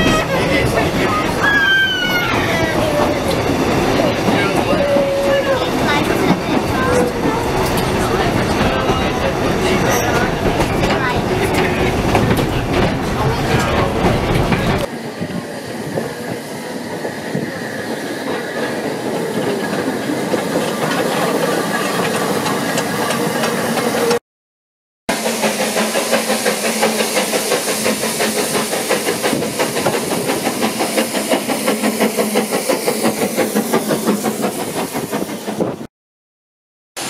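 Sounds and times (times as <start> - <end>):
steam locomotive chugging: 0.0 - 24.2, 25.1 - 35.9
steam hissing: 25.1 - 35.7.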